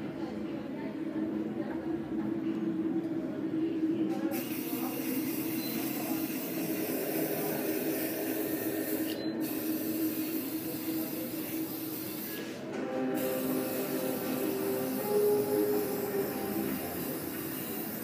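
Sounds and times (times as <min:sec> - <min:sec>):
aerosol spray can hissing: 0:06.2 - 0:12.5, 0:13.2 - 0:18.0.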